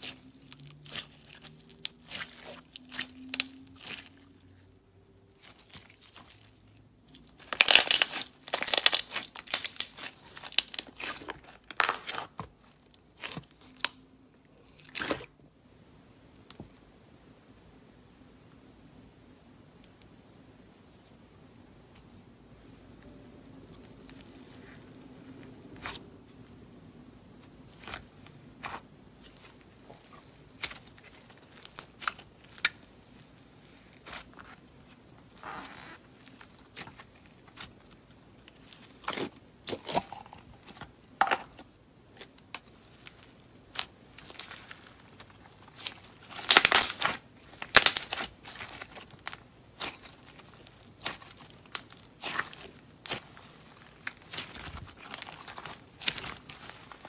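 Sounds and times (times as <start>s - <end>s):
slime crackling and popping: 0.0s - 15.3s, 27.4s - 57.0s.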